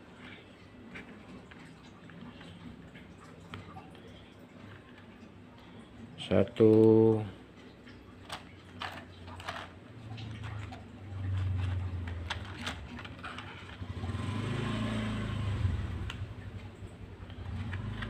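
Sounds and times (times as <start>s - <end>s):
plastic toy clicks and knocks: 8.2s - 13.8s.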